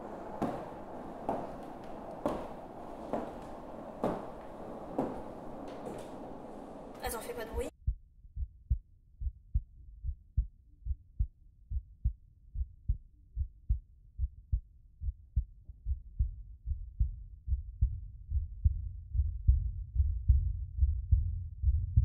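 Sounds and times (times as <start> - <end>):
muffled heartbeat-like thumps: 7.8 - 22.0.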